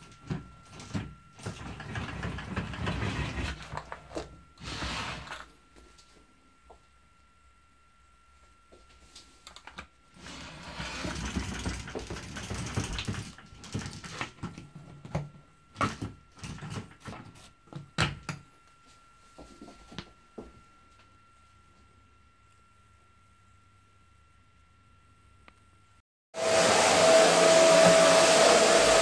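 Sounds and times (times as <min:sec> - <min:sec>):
roller blind rustling: 0:01.6 - 0:05.5, 0:10.2 - 0:13.4, 0:26.4 - 0:29.0.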